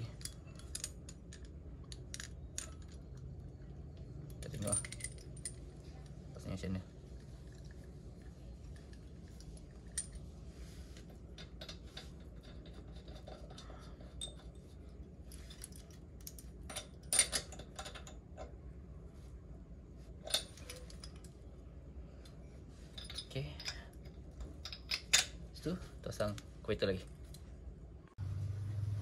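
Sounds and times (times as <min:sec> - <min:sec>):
metal tools clinking: 0:00.0 - 0:03.1, 0:04.2 - 0:05.7, 0:11.2 - 0:18.5, 0:20.2 - 0:21.3, 0:22.8 - 0:25.9
low steady hum: 0:00.0 - 0:29.0.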